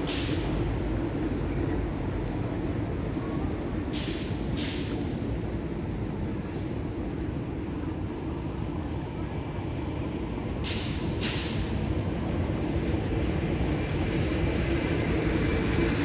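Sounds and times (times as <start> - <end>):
air brake hisses: 0.0 - 0.6, 3.9 - 5.1, 10.6 - 11.8
bus engine rumbling: 0.0 - 16.0.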